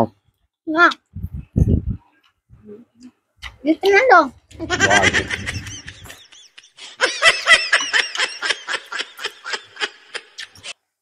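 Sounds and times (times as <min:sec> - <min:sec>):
person laughing: 0:04.6 - 0:10.5.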